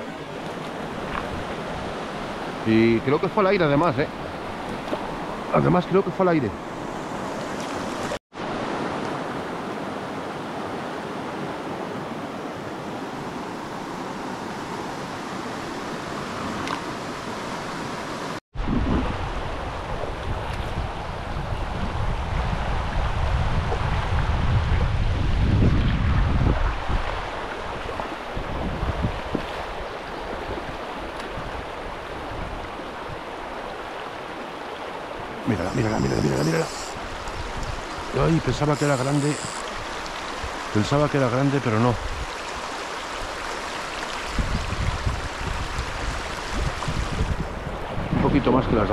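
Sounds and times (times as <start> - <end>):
fast-flowing river rushing: 26.6 - 48.0.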